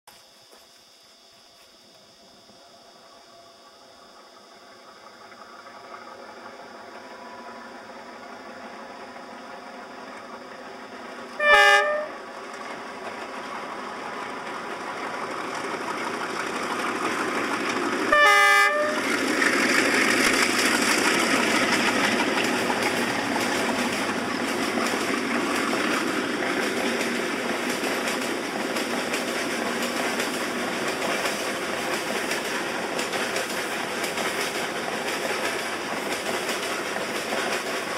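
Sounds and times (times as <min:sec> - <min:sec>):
locomotive engine drone: 0:00.1 - 0:37.9
train wheels rumbling and clattering: 0:04.7 - 0:37.9
train horn blasts: 0:11.4 - 0:12.3, 0:18.1 - 0:19.2.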